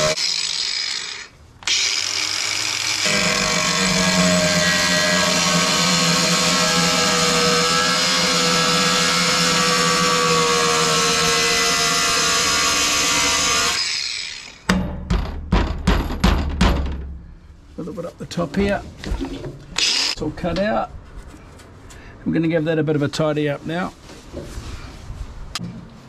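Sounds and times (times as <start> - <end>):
angle grinder cutting metal: 0.0 - 14.7, 19.8 - 20.2.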